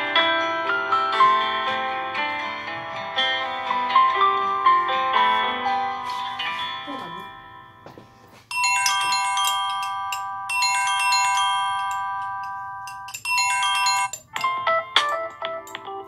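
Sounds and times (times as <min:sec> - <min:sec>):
bell-like chiming ringtone: 0:06.3 - 0:14.6
phone ringtone tune: 0:06.4 - 0:16.0.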